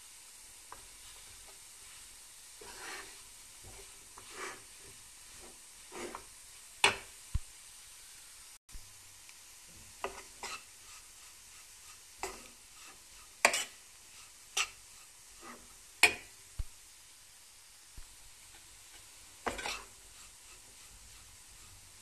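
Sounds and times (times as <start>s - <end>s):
metal spoon scraping pot: 19.4s - 19.9s.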